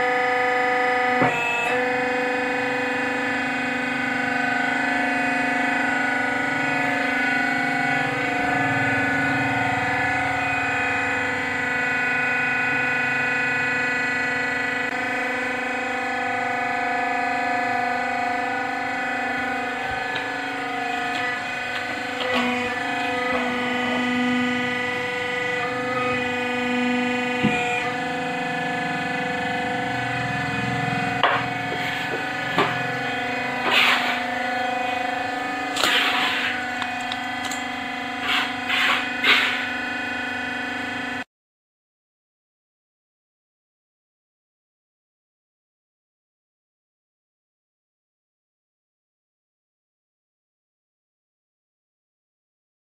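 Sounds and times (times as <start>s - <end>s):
droning hum of held tones: 0.0s - 41.3s
scraping and rubbing noises: 31.4s - 35.0s, 35.6s - 37.5s, 38.1s - 39.8s.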